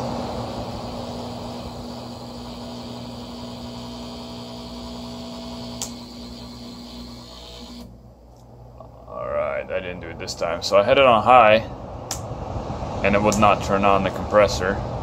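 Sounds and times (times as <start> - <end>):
air conditioner fan running: 0.0 - 15.0
electrical hum: 0.0 - 15.0
sharp click: 12.1 - 12.3.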